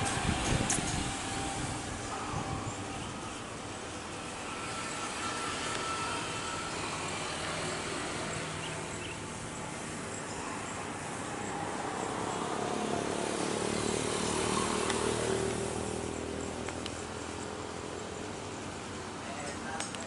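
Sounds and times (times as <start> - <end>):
jet engines roaring: 0.0 - 19.2.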